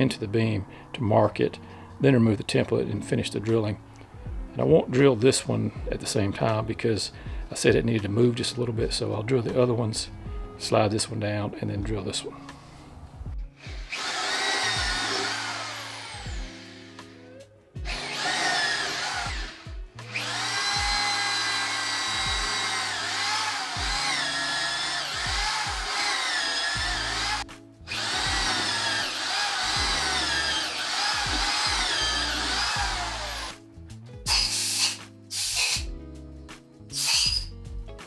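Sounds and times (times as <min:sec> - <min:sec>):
electric drill boring into wood: 0:13.6 - 0:33.6, 0:34.3 - 0:35.9, 0:36.9 - 0:37.5.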